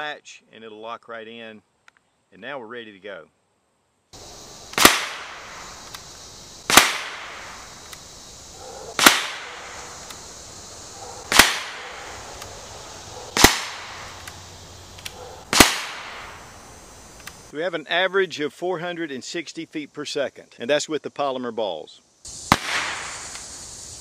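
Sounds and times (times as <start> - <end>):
air pistol shots: 4.7 - 8.1, 8.9 - 10.2, 11.2 - 12.5, 13.3 - 16.5, 22.5 - 23.5.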